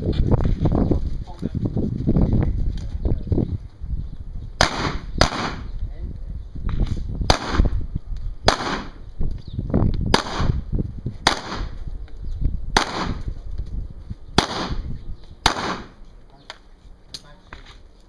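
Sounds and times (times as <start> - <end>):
handgun shots with echo: 4.6 - 5.6, 8.5 - 9.0, 15.4 - 16.0.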